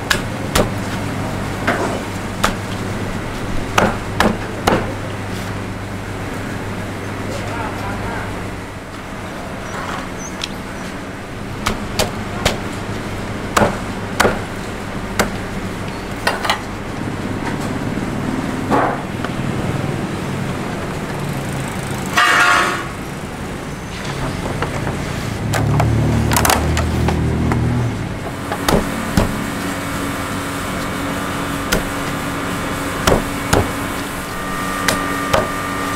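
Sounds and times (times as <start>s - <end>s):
steady background hum: 0.0s - 35.9s
cleaver chopping on wooden board: 0.1s - 0.8s, 3.8s - 4.9s, 13.6s - 14.5s, 28.5s - 29.4s, 31.7s - 32.0s, 33.0s - 33.8s, 34.8s - 35.6s.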